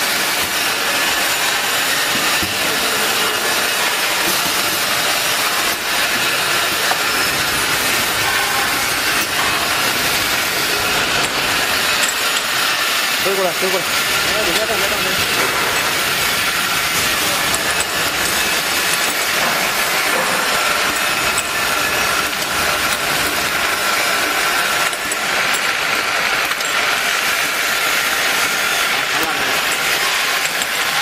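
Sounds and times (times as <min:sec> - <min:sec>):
filling machine whirring and hissing: 0:00.0 - 0:31.0.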